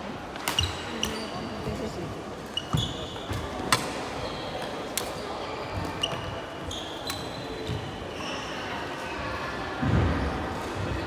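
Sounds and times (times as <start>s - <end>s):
shoes squeaking on wooden floor: 2.5s - 3.6s.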